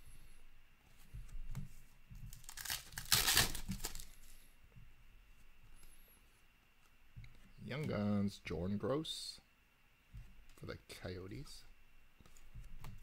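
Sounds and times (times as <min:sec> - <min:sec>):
cards being handled: 0:01.1 - 0:04.3
foil wrapper tearing and crinkling: 0:02.4 - 0:04.1.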